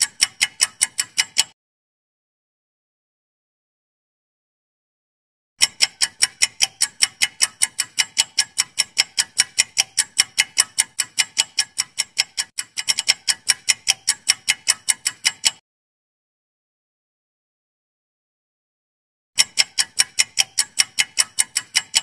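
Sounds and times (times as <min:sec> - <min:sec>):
timer ticking rapidly: 0:00.0 - 0:01.6, 0:05.6 - 0:15.6, 0:19.4 - 0:22.0.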